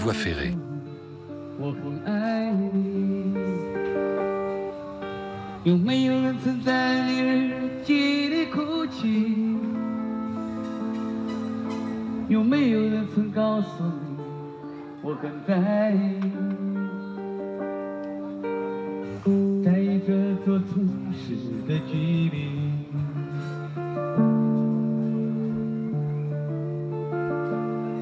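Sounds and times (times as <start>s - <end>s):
person singing through microphone: 19.5s - 23.4s.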